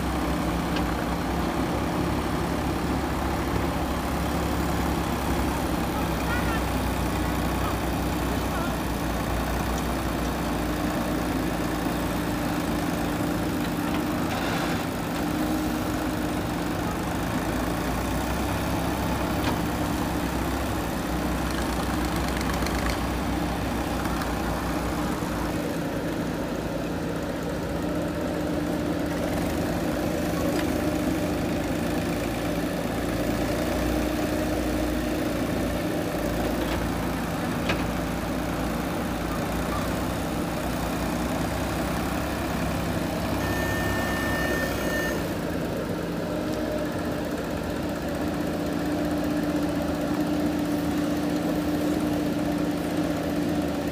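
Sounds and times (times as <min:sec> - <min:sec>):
diesel engine running: 0:00.0 - 0:53.9
backhoe digging soil: 0:13.0 - 0:16.2.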